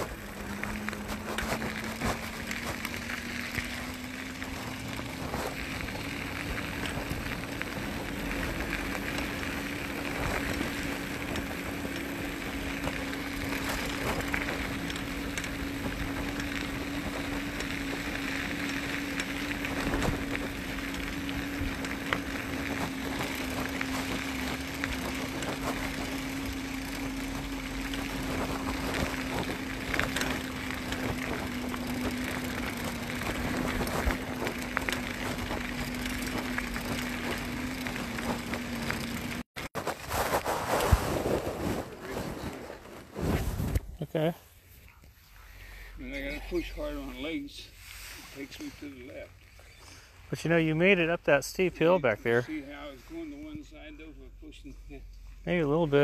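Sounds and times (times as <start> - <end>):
electric bike motor whining: 0.0 - 43.9
tyre noise: 0.0 - 44.4
wind: 0.0 - 56.0.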